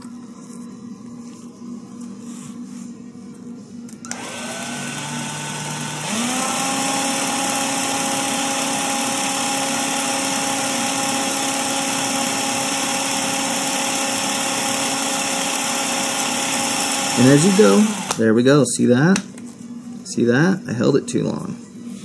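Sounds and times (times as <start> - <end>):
drill whining: 4.1 - 18.2.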